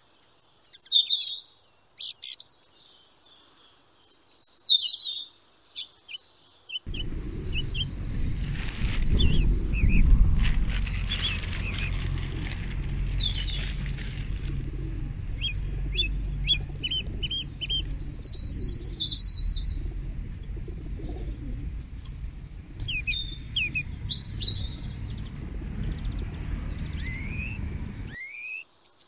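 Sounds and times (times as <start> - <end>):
small birds chirping: 0.0 - 29.0
pigeons flapping wings: 6.9 - 19.1.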